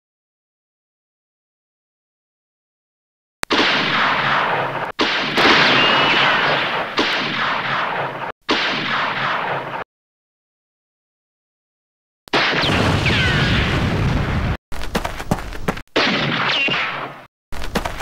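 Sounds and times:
dense gunfire: 3.4s - 9.8s, 12.3s - 14.6s, 16.0s - 17.3s.

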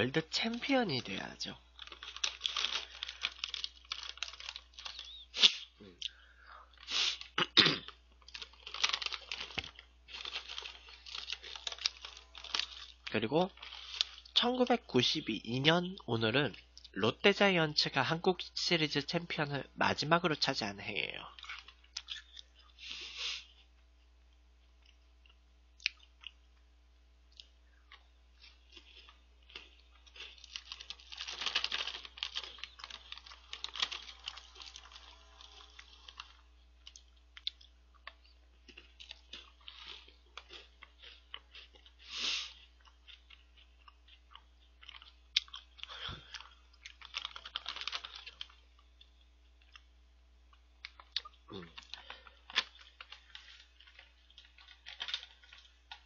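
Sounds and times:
person chewing crunchy snack: 1.6s - 14.4s, 27.3s - 49.9s, 50.5s - 56.0s.

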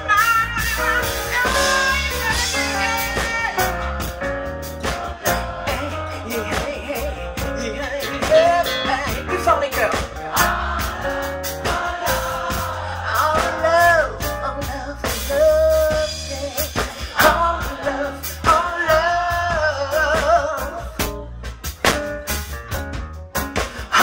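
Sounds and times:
woman singing: 0.0s - 3.7s, 13.2s - 21.0s
live band playing zouk: 0.0s - 24.0s.

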